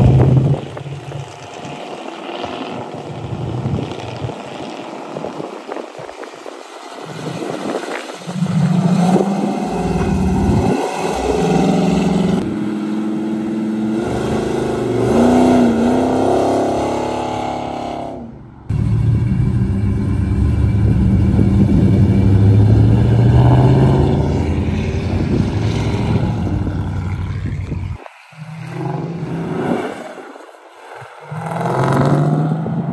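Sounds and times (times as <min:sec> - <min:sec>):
cars driving past: 0:00.0 - 0:32.9
car engine revving: 0:07.1 - 0:30.3, 0:31.1 - 0:32.9.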